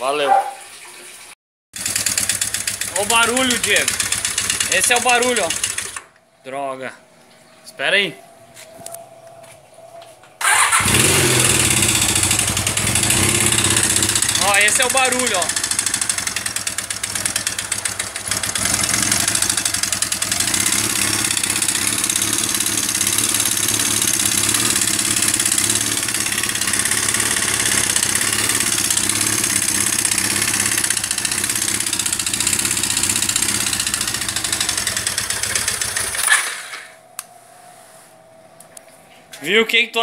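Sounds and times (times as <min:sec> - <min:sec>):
motorcycle engine running: 0:01.8 - 0:06.0, 0:10.4 - 0:36.2.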